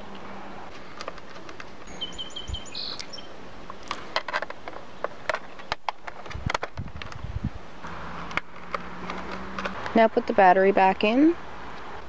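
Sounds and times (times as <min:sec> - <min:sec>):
small bird chirping: 0:01.8 - 0:03.4.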